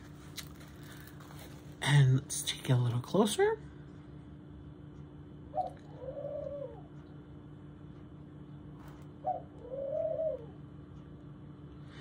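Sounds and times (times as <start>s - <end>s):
pet bird calling: 5.5s - 6.9s, 9.2s - 10.6s.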